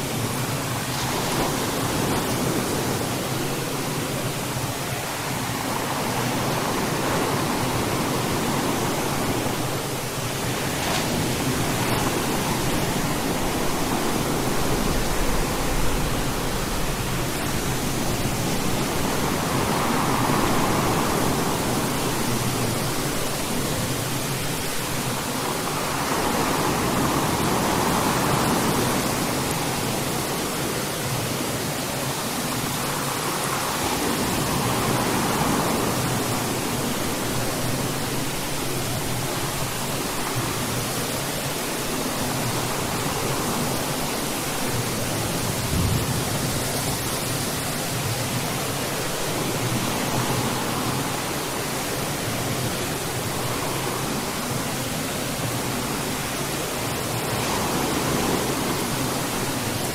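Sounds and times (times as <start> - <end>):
steady rain hiss: 0.0 - 59.9.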